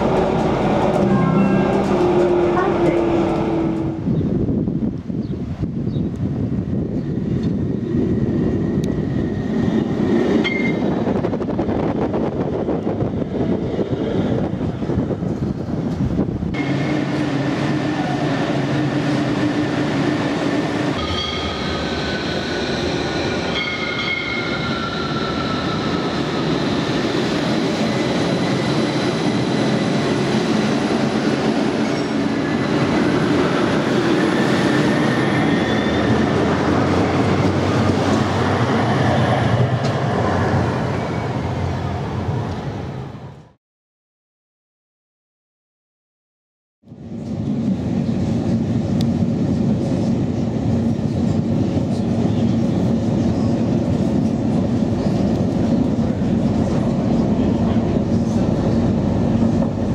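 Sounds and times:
tram wheel rumble and hum: 0:00.0 - 0:43.6, 0:46.8 - 0:59.9
wheels whining and squealing: 0:21.2 - 0:30.2.

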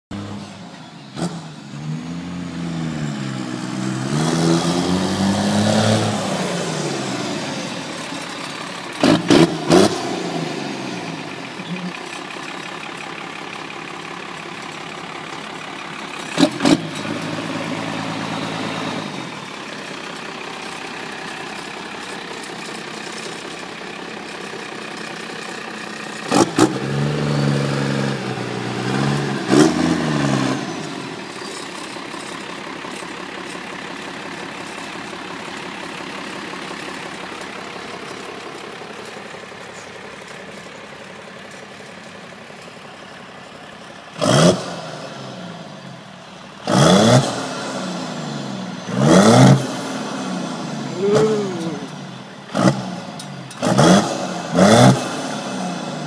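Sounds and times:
diesel engine revving and idling: 0:00.1 - 0:56.0.

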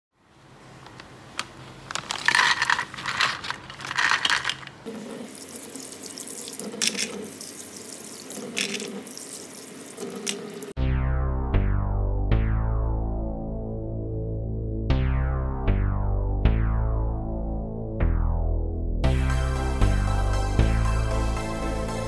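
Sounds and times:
plastic packet crinkling: 0:01.6 - 0:04.8
water splashing: 0:04.9 - 0:10.8.

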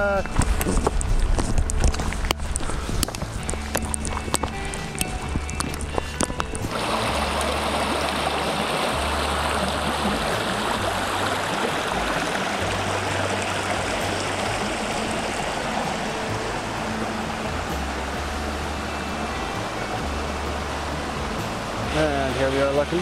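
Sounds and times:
creek rushing over rocks: 0:00.0 - 0:23.0.

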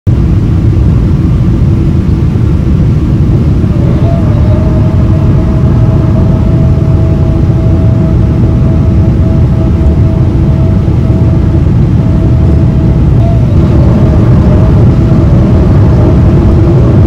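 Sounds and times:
aircraft engine and airflow rumble: 0:00.1 - 0:17.0
steady whine: 0:00.1 - 0:17.0.

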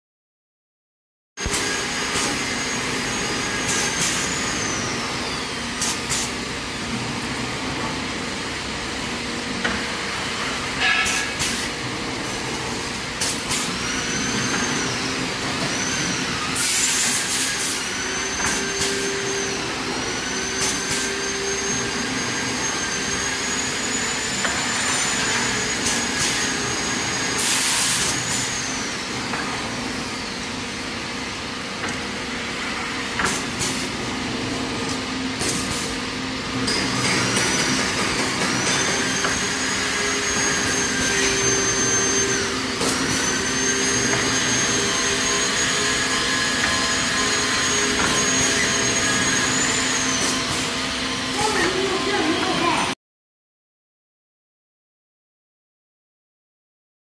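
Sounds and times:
tube bending machine motor whine: 0:01.4 - 0:52.9
pneumatic air hiss: 0:03.6 - 0:04.6, 0:05.8 - 0:06.4, 0:10.9 - 0:11.7, 0:13.2 - 0:14.8, 0:15.6 - 0:19.1, 0:20.5 - 0:21.7, 0:25.8 - 0:28.6, 0:33.2 - 0:33.9, 0:35.4 - 0:36.0, 0:46.5 - 0:50.8.

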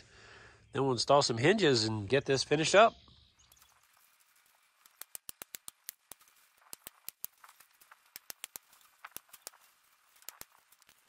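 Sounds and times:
wire mesh clicking and ticking: 0:03.5 - 0:11.0.

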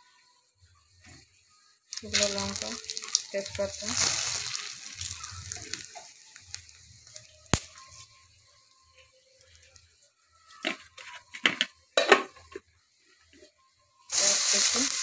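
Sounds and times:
spices sizzling in hot oil: 0:01.8 - 0:10.8, 0:14.1 - 0:15.0
crackling rustling noises: 0:01.9 - 0:11.7, 0:13.0 - 0:15.0.

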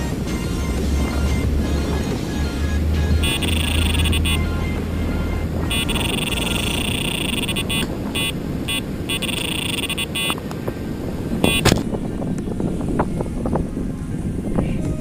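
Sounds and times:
steady low rush: 0:00.0 - 0:15.0
high-pitched electronic beeping: 0:03.2 - 0:10.4, 0:11.4 - 0:11.7.

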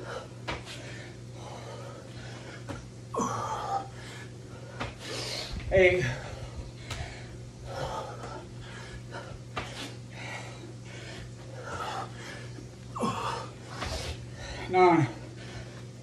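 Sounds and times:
man breathing hard: 0:00.0 - 0:16.0
man grunting: 0:03.1 - 0:03.9, 0:12.9 - 0:13.6.

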